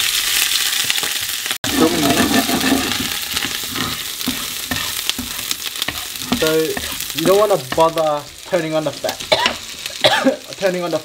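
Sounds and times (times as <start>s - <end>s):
garlic sizzling in hot oil: 0.0s - 11.0s
wooden spatula stirring: 1.7s - 9.7s.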